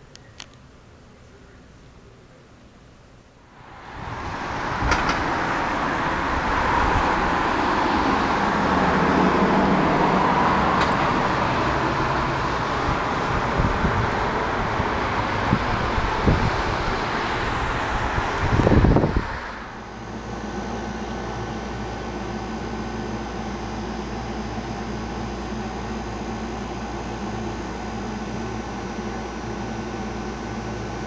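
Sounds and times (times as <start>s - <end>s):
steady rushing noise: 3.5s - 22.4s.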